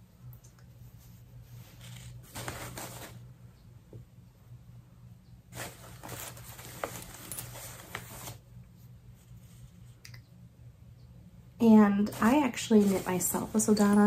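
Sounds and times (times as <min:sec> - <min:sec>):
faint low hum: 0:00.0 - 0:14.0
yarn rustling: 0:05.5 - 0:08.4, 0:11.6 - 0:14.0.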